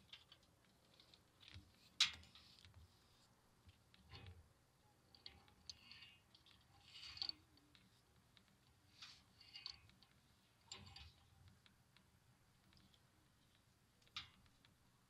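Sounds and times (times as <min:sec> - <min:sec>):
rope rustling through pulley: 0:05.2 - 0:08.0.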